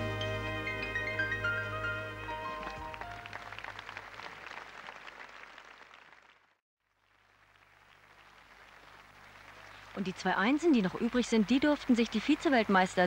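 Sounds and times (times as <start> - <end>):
audience applause: 2.4 - 13.0.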